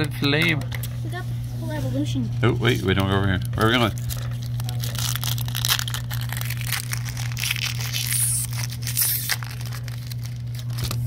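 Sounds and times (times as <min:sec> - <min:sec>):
steady low hum: 0:00.0 - 0:11.0
foil wrapper crinkling and tearing: 0:02.8 - 0:11.0.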